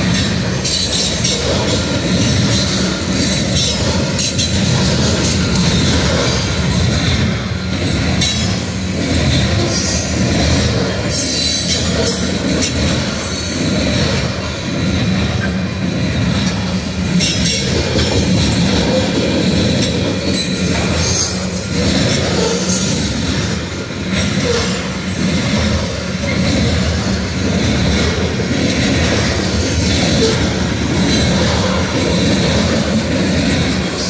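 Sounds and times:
train wheels rumbling on rail: 0.0 - 34.0.

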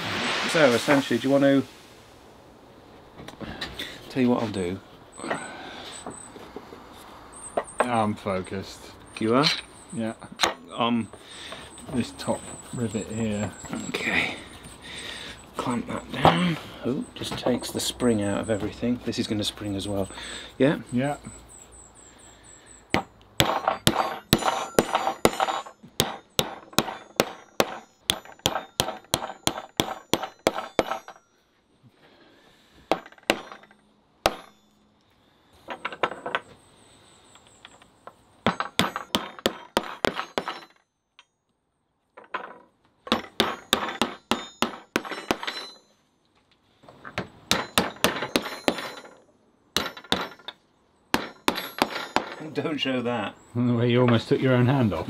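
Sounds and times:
hammer striking wooden block: 22.9 - 31.2, 32.9 - 34.7, 38.4 - 40.8, 43.1 - 45.8, 47.2 - 49.1, 49.8 - 52.4.

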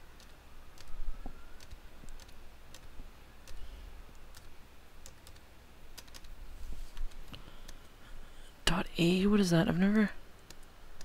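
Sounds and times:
low steady hum: 0.0 - 11.0
keyboard keys clicking: 0.2 - 1.0, 1.6 - 6.4.

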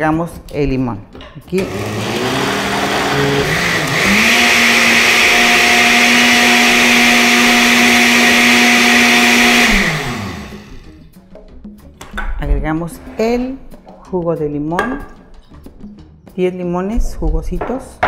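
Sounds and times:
blender motor running: 1.6 - 10.9.

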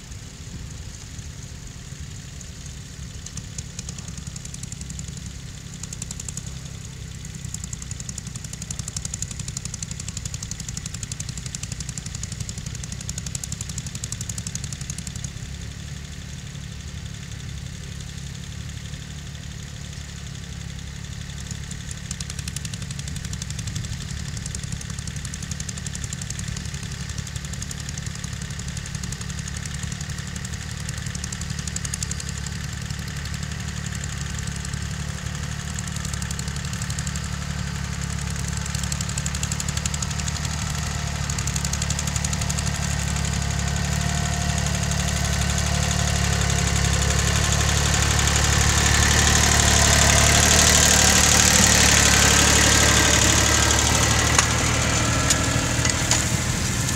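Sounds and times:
garden tractor engine running: 0.0 - 56.9.

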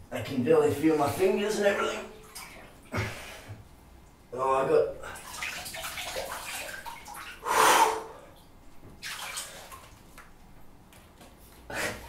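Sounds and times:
water splashing in bathtub: 0.7 - 4.2, 5.0 - 10.4.

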